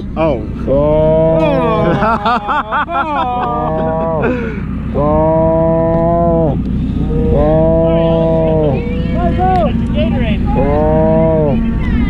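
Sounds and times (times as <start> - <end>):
calf bawling: 4.9 - 9.7, 10.5 - 12.0.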